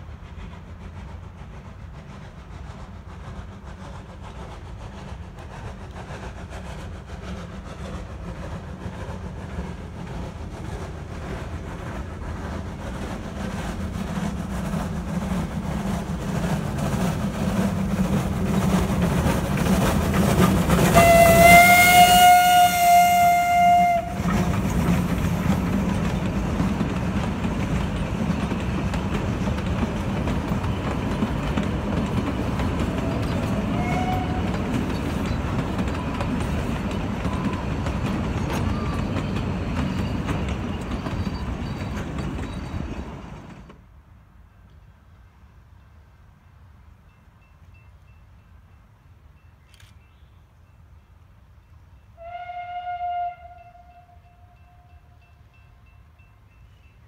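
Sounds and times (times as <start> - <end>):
steam hissing: 0.0 - 43.7
steam locomotive passing: 0.0 - 57.0
carriages rolling past: 11.0 - 43.8
steam whistle: 20.9 - 24.4, 33.1 - 34.6, 52.2 - 55.2.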